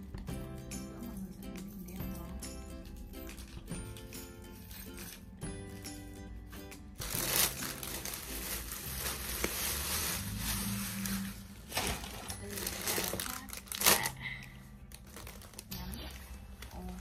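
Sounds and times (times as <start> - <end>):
background music: 0.0 - 17.0
plastic bag crinkling: 7.0 - 15.8.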